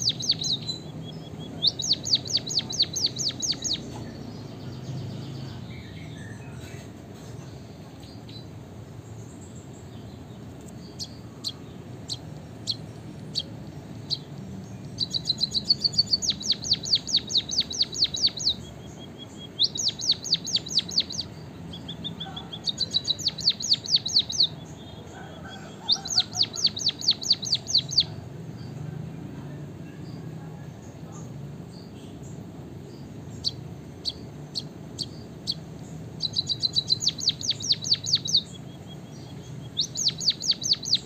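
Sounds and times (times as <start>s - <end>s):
bird singing high falling notes: 36.2s - 41.0s.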